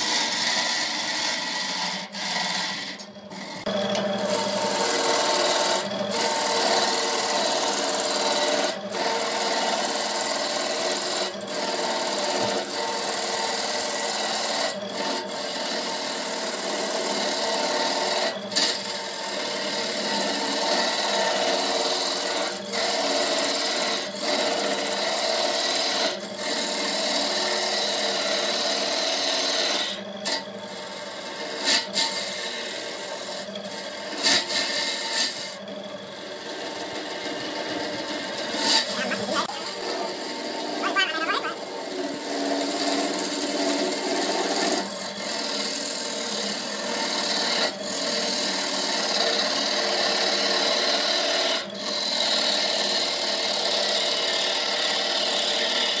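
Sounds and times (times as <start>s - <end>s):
hand tool scraping spinning wood: 0.0s - 12.6s, 38.2s - 49.2s
wood lathe running: 0.0s - 56.0s.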